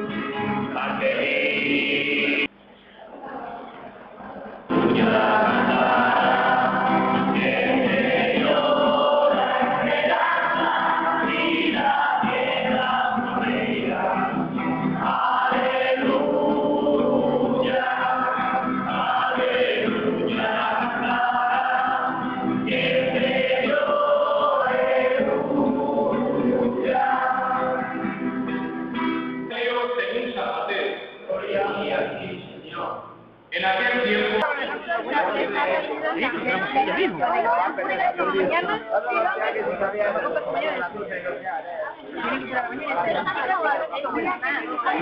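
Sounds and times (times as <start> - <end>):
acoustic guitar: 0.0 - 2.6, 3.4 - 33.2
group singing church song: 0.0 - 38.6, 44.3 - 45.0.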